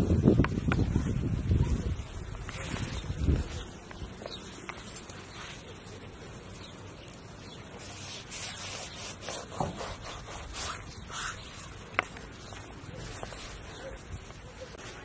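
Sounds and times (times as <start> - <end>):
outdoor background noise: 0.0 - 15.0
knife sawing through buns: 7.8 - 11.5.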